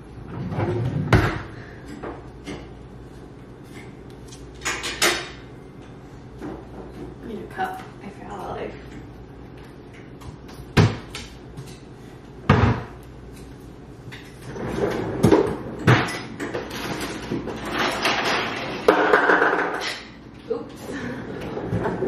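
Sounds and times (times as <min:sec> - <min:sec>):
household knocks and rattling: 0:14.5 - 0:20.0.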